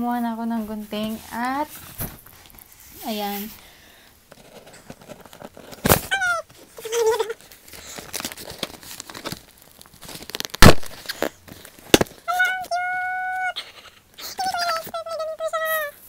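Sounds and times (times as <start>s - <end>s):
cardboard flaps crinkling: 4.3s - 12.3s
packing tape tearing: 4.4s - 12.3s.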